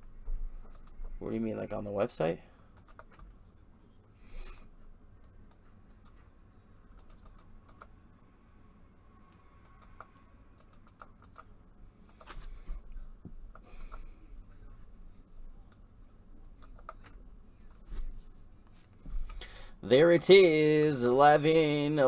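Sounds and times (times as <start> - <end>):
computer keyboard typing: 2.7 - 3.3, 6.9 - 7.9, 9.6 - 11.5.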